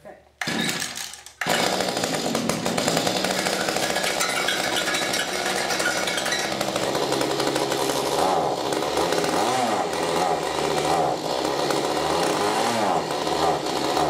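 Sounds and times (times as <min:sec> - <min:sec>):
tiller tines spinning: 0:00.4 - 0:14.0
two-stroke tiller engine running: 0:00.4 - 0:14.0.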